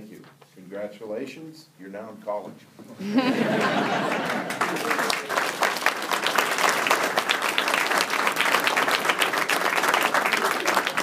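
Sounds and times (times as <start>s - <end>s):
crowd applauding: 3.5s - 11.0s.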